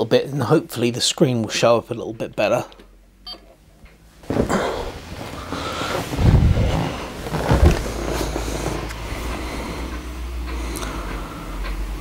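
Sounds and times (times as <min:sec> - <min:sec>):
low mechanical whir: 0:02.8 - 0:12.0.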